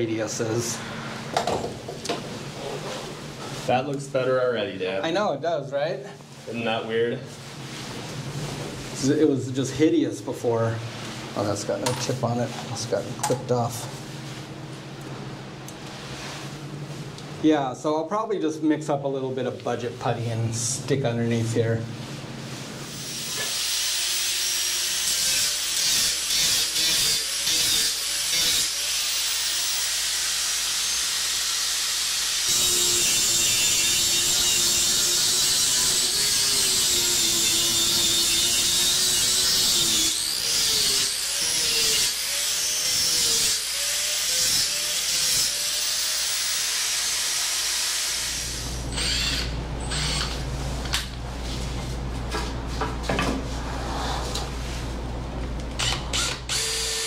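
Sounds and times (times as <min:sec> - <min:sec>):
power tool motor under load: 0:46.1 - 0:50.4, 0:55.8 - 0:57.0.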